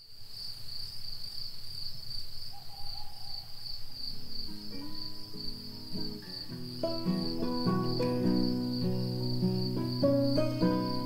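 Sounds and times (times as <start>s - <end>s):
insect chirping trill: 0.0s - 11.0s
soft music notes: 4.4s - 11.0s.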